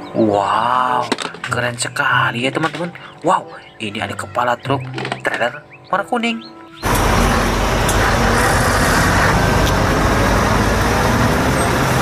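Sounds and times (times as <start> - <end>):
lorry diesel engine rumbling: 6.8 - 12.0
road noise: 6.8 - 12.0.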